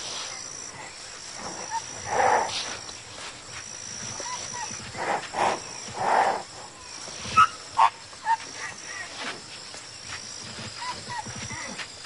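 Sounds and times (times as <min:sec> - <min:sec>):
high insect buzz: 0:00.0 - 0:12.0
rhinoceros calf crying: 0:04.1 - 0:05.2.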